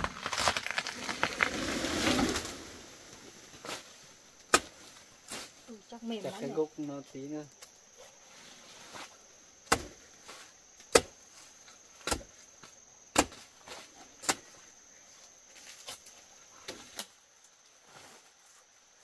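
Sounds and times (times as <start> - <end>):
high insect drone: 0.0 - 19.0
blade chopping plant stem: 9.7 - 9.9.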